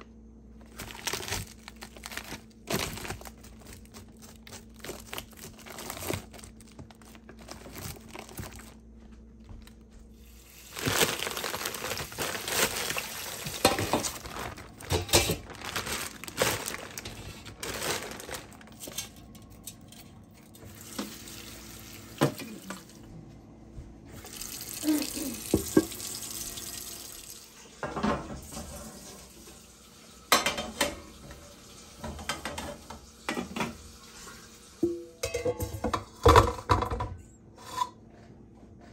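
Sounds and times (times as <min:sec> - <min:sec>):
water running from a tap: 0:10.2 - 0:10.8, 0:20.6 - 0:22.9, 0:24.2 - 0:27.8, 0:28.4 - 0:34.8
steamer pot knocks and clinks: 0:34.8 - 0:37.2.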